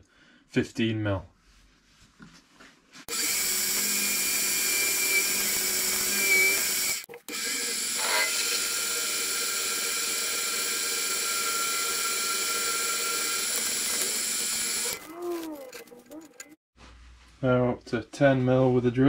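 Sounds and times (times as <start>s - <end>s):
lathe motor whine: 3.1s - 15.1s.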